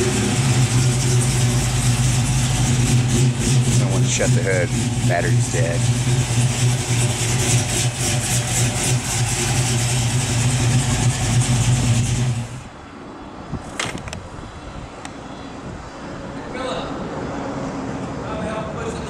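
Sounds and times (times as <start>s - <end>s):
car engine idling: 0.0s - 12.8s.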